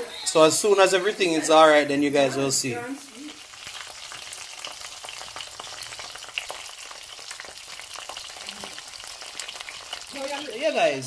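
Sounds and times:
plantain frying in hot oil: 0.3s - 11.0s
small crackling pops: 3.2s - 10.5s.

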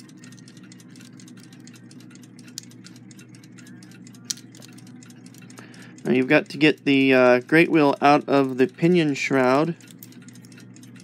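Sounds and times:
clock mechanism clicking and ticking: 0.0s - 11.0s
sharp clicks: 0.0s - 11.0s
steady low hum: 0.0s - 11.0s.

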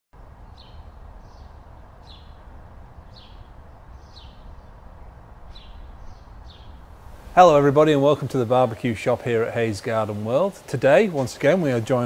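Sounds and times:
low background rumble: 0.2s - 8.2s
small bird chirping: 0.4s - 6.9s.

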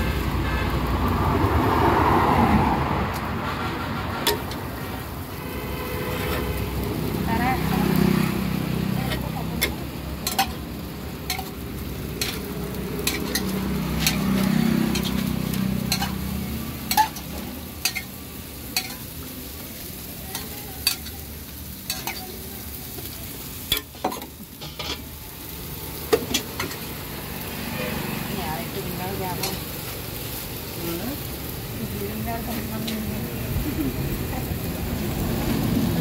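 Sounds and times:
batter sizzling on griddle: 0.0s - 36.0s
metal spatula scraping griddle: 3.4s - 5.0s, 6.0s - 6.7s, 9.0s - 19.2s, 23.0s - 25.2s.

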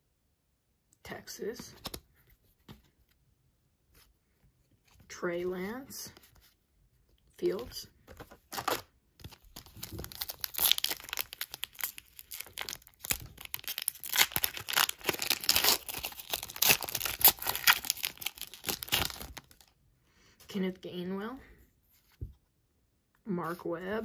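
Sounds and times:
foil wrapper tearing and crinkling: 8.5s - 19.7s.

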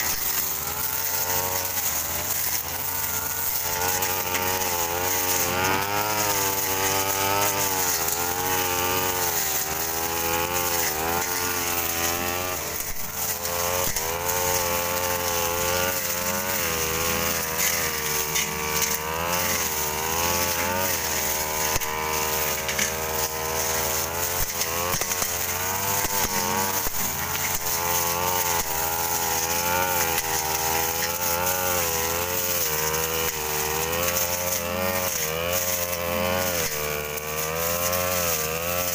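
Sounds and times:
brush cutter engine: 0.0s - 38.9s
second brush cutter: 0.0s - 38.9s.

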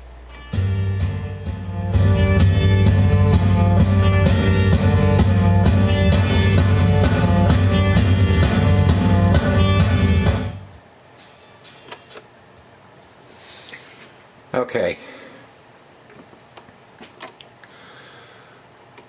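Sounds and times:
rock music with guitar and drums: 0.4s - 12.2s.

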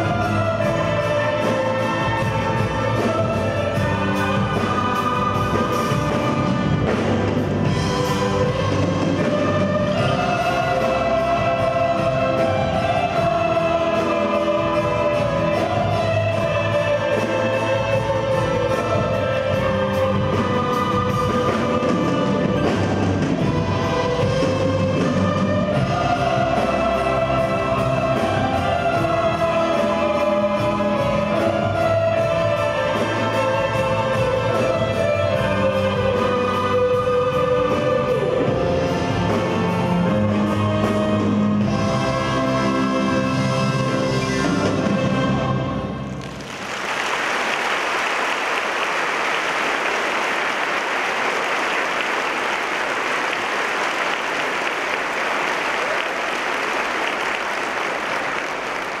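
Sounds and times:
orchestra with recorders: 0.0s - 47.1s
children's choir singing: 0.0s - 59.0s
audience applauding: 46.1s - 59.0s.

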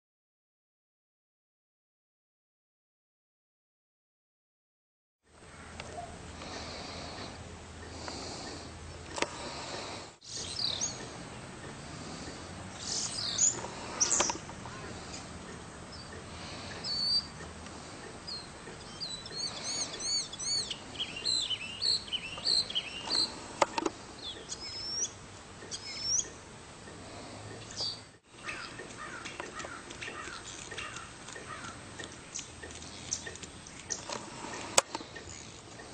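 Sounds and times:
birds chirping and singing: 9.4s - 35.9s.

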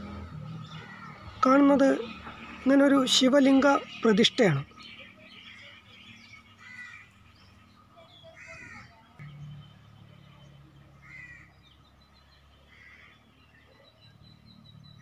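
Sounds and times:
crow cawing: 0.7s - 1.3s, 6.6s - 7.2s, 8.3s - 9.0s, 11.0s - 11.6s, 12.7s - 13.2s.

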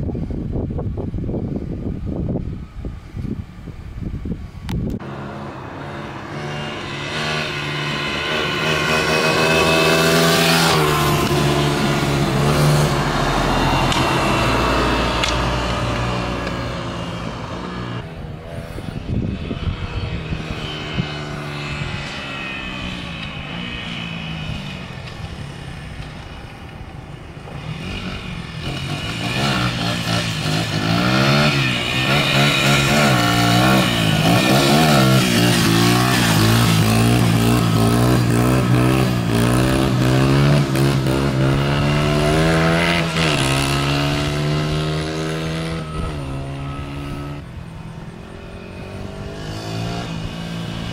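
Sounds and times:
dirt bike engine revving: 5.0s - 18.0s, 27.6s - 47.4s, 48.4s - 50.9s.

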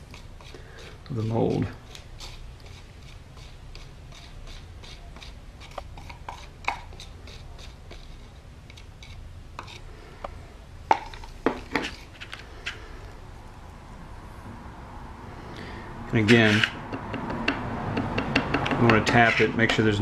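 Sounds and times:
stick tapping inside plastic cup: 4.2s - 8.0s, 16.6s - 19.8s.

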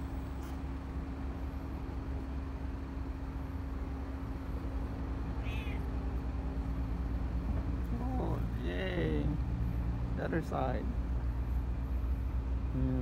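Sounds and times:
low mechanical hum: 0.0s - 13.0s
cat mewing: 5.3s - 6.0s.

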